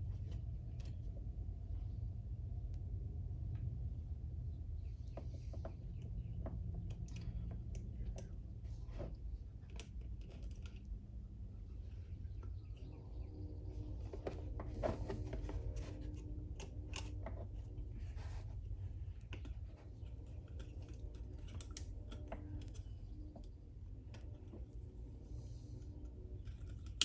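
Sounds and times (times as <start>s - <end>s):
low steady hum: 0.0s - 27.0s
metallic clicks and scrapes: 13.8s - 27.0s.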